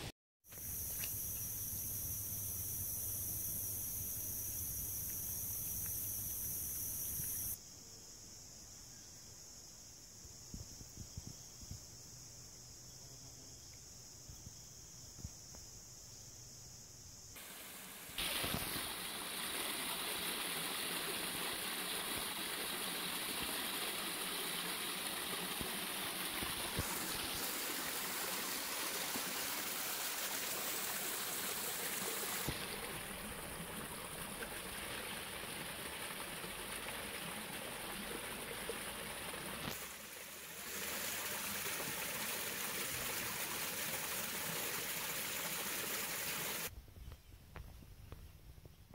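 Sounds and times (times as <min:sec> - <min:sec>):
stream rushing and trickling: 0:17.4 - 0:46.7.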